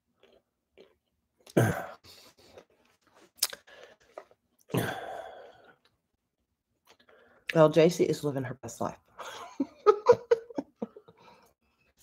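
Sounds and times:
throaty vocal bursts: 1.5s - 2.0s, 4.7s - 5.5s.

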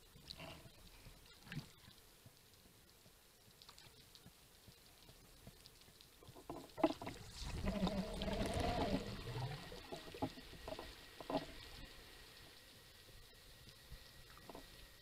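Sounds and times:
rushing water noise: 6.6s - 13.2s.

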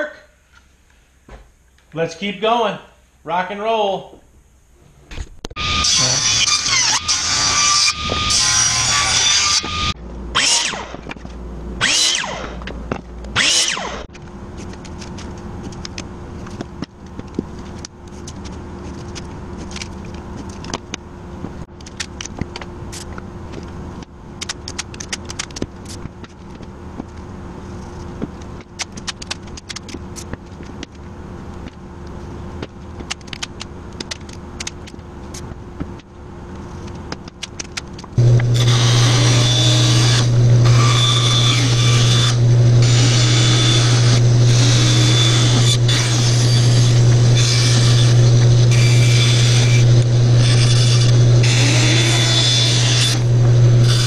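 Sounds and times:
steady low hum: 0.0s - 54.0s
loud rasping bursts: 5.6s - 10.9s, 11.8s - 12.5s, 13.4s - 14.1s, 38.2s - 54.0s
table saw running: 5.6s - 10.9s, 11.8s - 12.6s, 13.4s - 14.1s, 38.2s - 54.0s
tape crackling and clicking: 14.1s - 38.6s.

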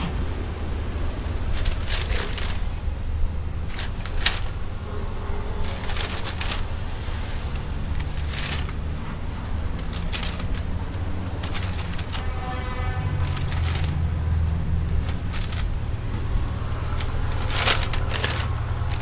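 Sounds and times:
short rustles and light clicks: 1.4s - 2.8s, 7.5s - 12.5s, 13.1s - 15.8s, 16.8s - 19.0s.

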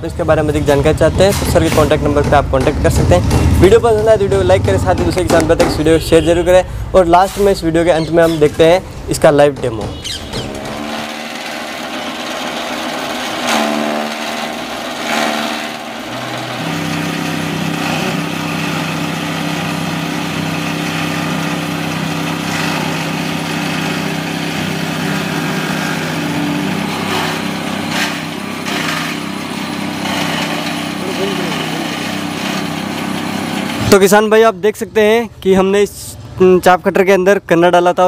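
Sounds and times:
small petrol engine droning: 10.0s - 33.9s
stalks cracking in cutter: 10.1s - 16.0s, 20.7s - 33.1s.

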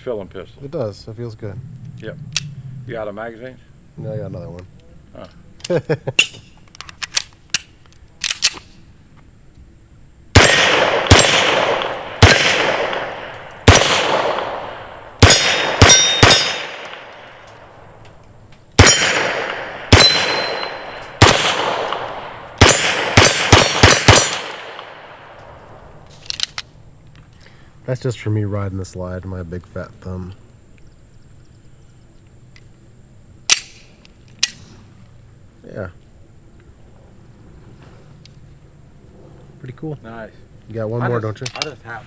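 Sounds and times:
pistol shots: 10.3s - 17.8s, 18.8s - 25.4s
steel targets ringing: 15.2s - 16.8s, 18.8s - 21.0s
metallic handling clicks: 26.1s - 27.3s, 33.5s - 34.7s, 41.4s - 41.8s.

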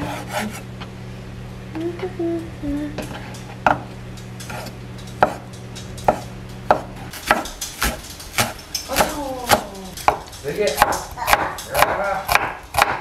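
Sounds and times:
low steady hum: 0.0s - 12.8s
knife cutting on wooden board: 4.4s - 5.4s, 6.0s - 10.2s.

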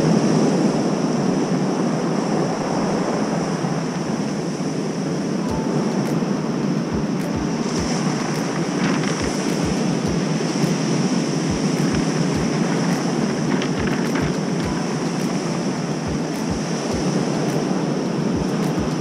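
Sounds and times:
wind thumps on microphone: 6.9s - 17.8s
surf breaking on cobblestones: 7.0s - 19.0s.

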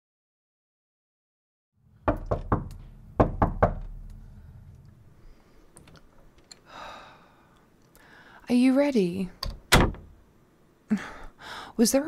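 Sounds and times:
knocking on wooden door: 2.0s - 4.0s.

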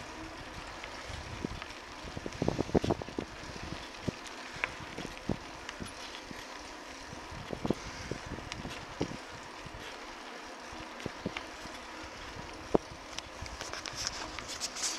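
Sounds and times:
wind on microphone: 0.0s - 6.4s, 7.1s - 9.8s
bike rattles and knocks: 0.0s - 14.9s.

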